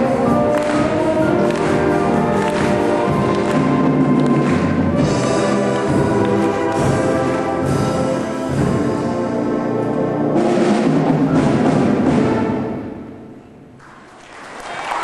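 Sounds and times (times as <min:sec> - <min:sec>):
audience applause: 0:00.0 - 0:07.4, 0:13.8 - 0:15.0.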